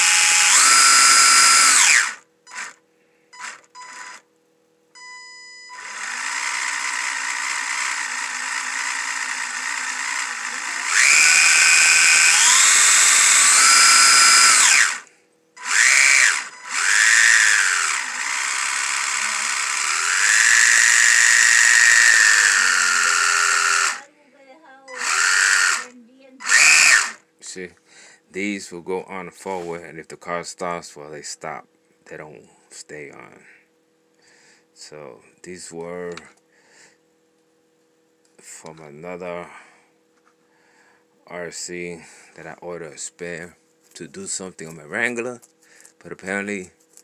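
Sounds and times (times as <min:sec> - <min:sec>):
electric motor whine: 0:00.0 - 0:02.8, 0:03.4 - 0:04.3, 0:05.7 - 0:24.1, 0:24.9 - 0:27.2.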